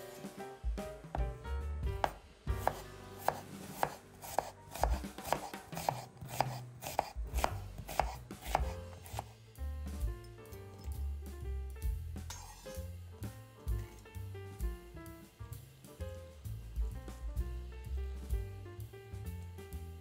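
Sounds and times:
knife slicing onion on board: 2.0 - 9.4.

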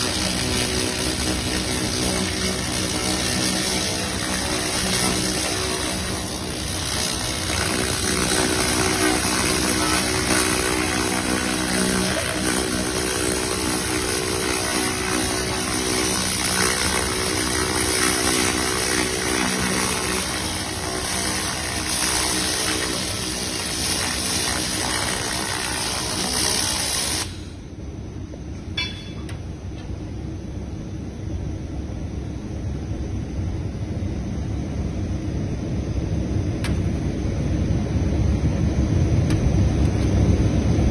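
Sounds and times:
laser cleaner hissing: 0.0 - 27.6
low machine hum: 0.0 - 40.9.

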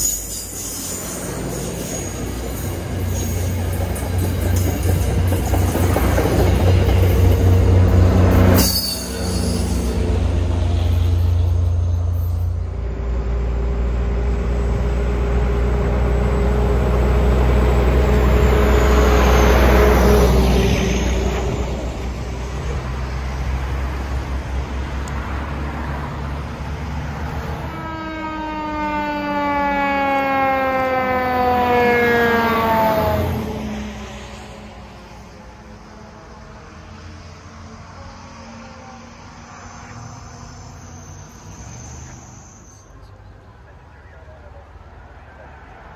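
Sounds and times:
train rolling on rails: 0.0 - 29.4, 30.0 - 45.9
truck diesel rumble passing: 2.4 - 28.7.

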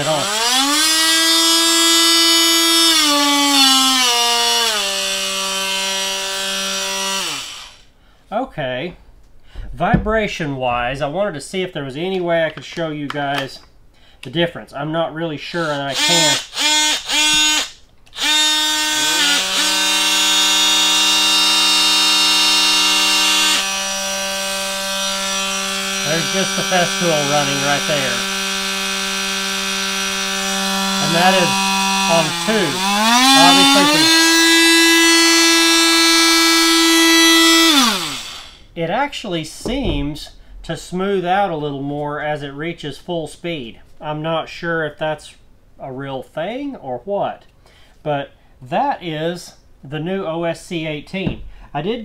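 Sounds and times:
oscillating tool whine: 16.0 - 38.6.

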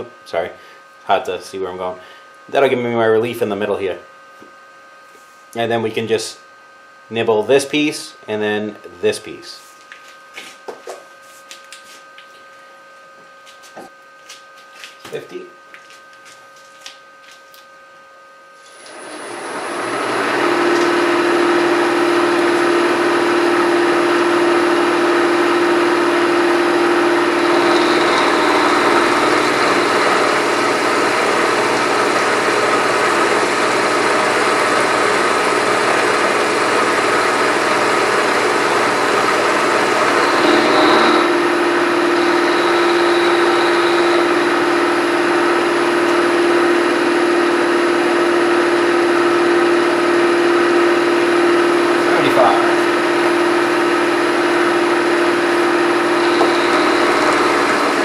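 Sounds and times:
milling machine cutting metal: 18.7 - 58.0.

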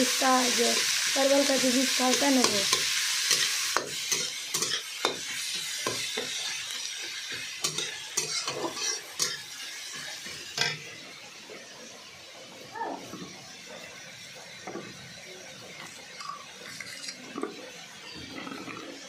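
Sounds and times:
vegetables sizzling in oil: 0.0 - 19.0
metal spoon scraping a pan: 1.6 - 10.8.

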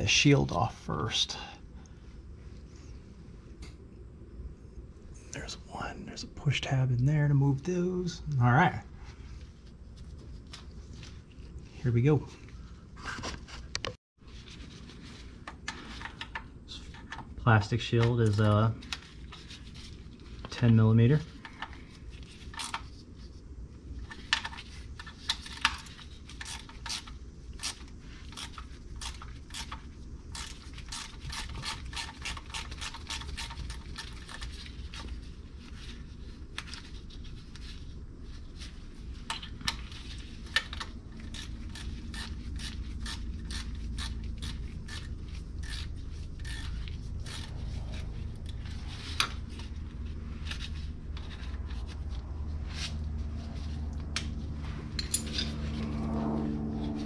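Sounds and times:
steady low hum: 0.0 - 57.0
metal tapping and scraping: 54.9 - 56.0.

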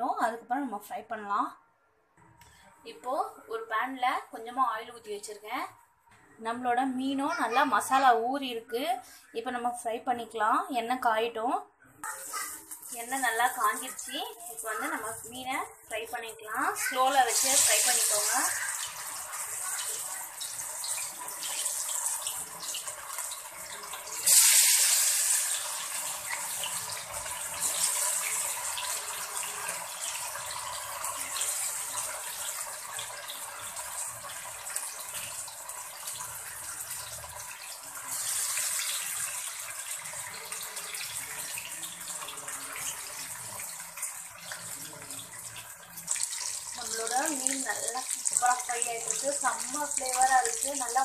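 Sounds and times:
fish deep-frying in oil: 12.1 - 51.0.

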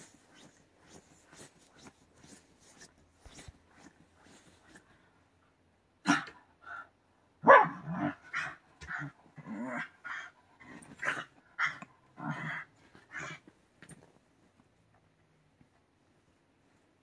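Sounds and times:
dog barking and growling: 6.0 - 6.5, 7.4 - 13.5.

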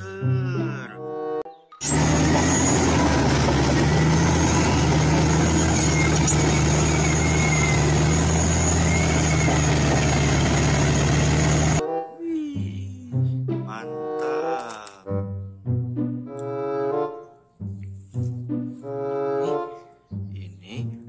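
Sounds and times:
bulldozer diesel engine humming: 1.8 - 11.8.

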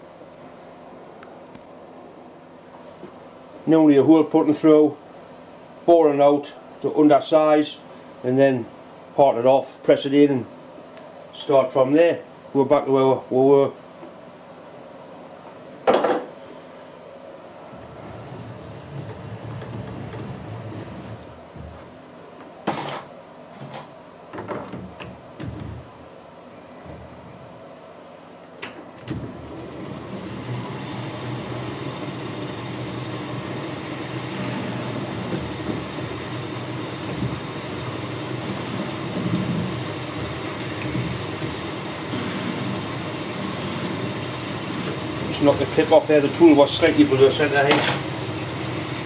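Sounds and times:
lathe running with high whine: 28.8 - 49.0.

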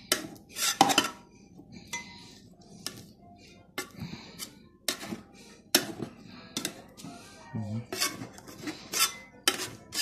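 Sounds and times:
knife scraping metal tray: 0.1 - 1.2, 7.9 - 10.0.

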